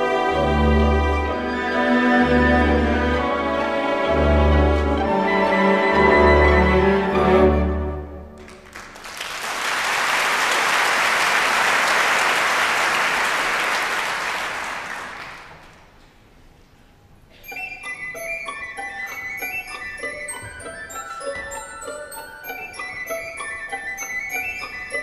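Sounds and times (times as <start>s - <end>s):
high bell-like orchestral notes: 0.0s - 8.3s, 17.3s - 25.0s
orchestra playing: 0.0s - 8.5s, 17.4s - 25.0s
audience applauding: 8.4s - 15.9s.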